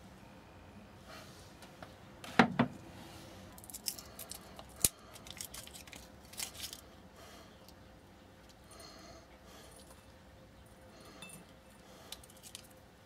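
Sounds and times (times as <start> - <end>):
wrappers crinkling and tearing: 3.6 - 6.9.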